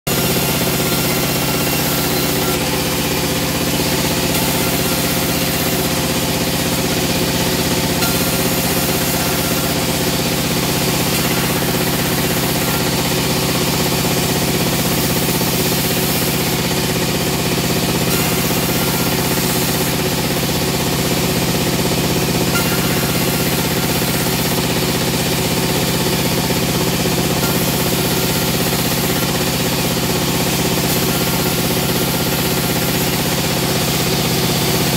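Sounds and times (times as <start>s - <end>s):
veneer peeling machine droning: 0.1s - 34.9s.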